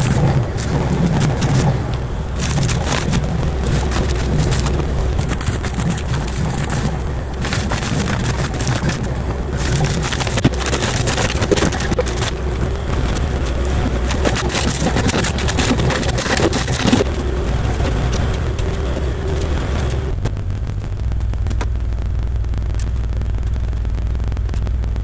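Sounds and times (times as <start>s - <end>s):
mulcher shredding brush: 0.0s - 20.2s
diesel engine working: 0.0s - 25.0s.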